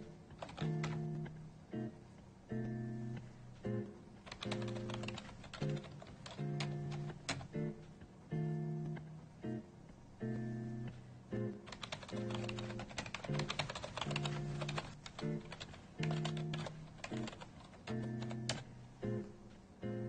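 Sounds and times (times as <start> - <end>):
computer keyboard typing: 0.4 - 1.1, 4.2 - 7.5, 11.7 - 18.6.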